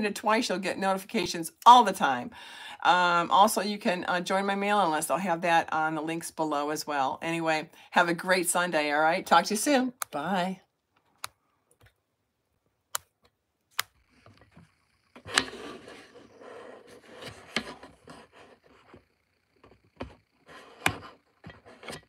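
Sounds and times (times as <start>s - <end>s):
cards rubbing and rustling: 13.7s - 22.0s.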